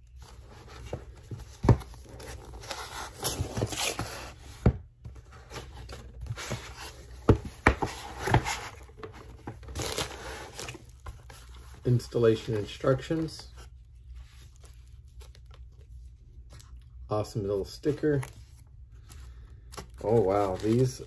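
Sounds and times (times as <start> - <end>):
cardboard scraping and rustling: 0.2 - 15.4, 20.0 - 21.0.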